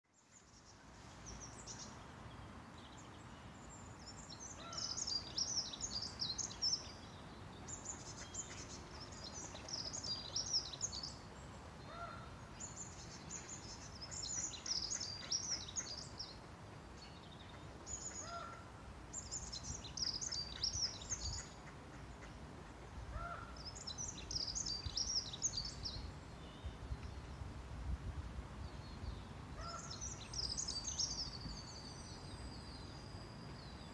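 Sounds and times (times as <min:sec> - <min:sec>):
songbird singing high phrases: 0:00.2 - 0:11.6, 0:12.6 - 0:16.4, 0:19.2 - 0:21.7, 0:23.6 - 0:27.5, 0:28.6 - 0:33.9.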